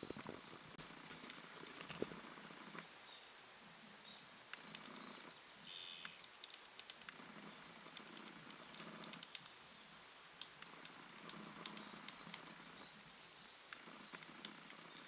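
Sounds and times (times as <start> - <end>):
woodpecker tapping on bark: 4.5 - 9.6, 10.4 - 12.8
buzzy bird call: 4.8 - 6.2.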